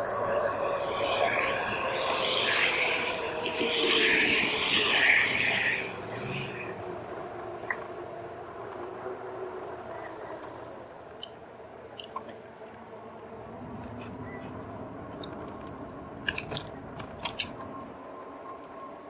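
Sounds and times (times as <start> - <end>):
faint steady whine: 0.0 - 19.0.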